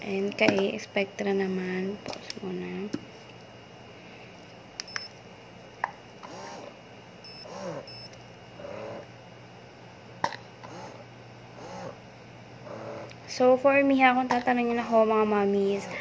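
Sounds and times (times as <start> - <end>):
pump motor whirring: 6.2 - 8.0
short high beeps: 7.3 - 8.1.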